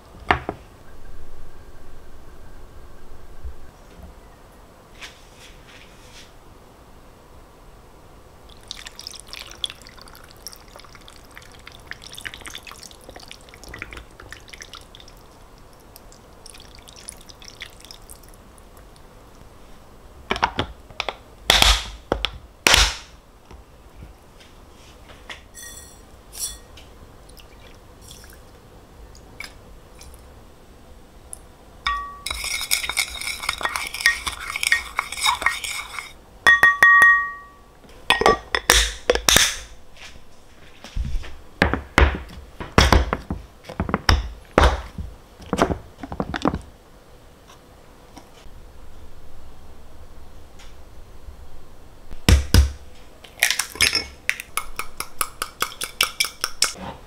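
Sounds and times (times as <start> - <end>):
dishes and glassware clinking: 25.5 - 26.7, 31.9 - 35.6, 36.5 - 39.6.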